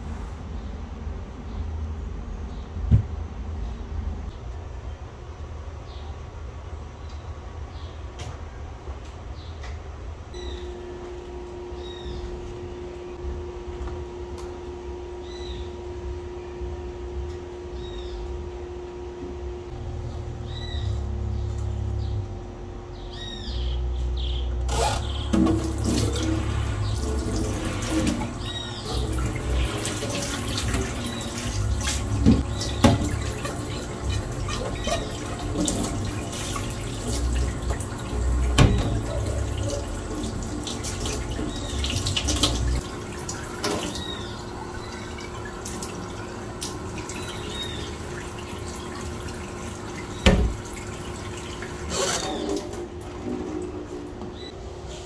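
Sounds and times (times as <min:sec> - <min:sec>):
birds chirping: 0:10.3 - 0:13.2, 0:15.2 - 0:18.5, 0:19.7 - 0:52.6
tap water running into sink: 0:24.7 - 0:54.4.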